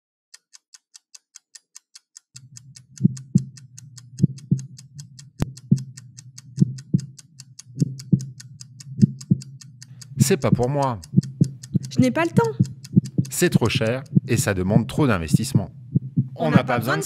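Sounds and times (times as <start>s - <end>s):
clock-like ticking: 0.3s - 17.0s
low hum: 2.4s - 17.0s
paired low thumps: 4.2s - 4.8s, 6.6s - 7.2s, 7.8s - 9.6s, 10.2s - 16.4s.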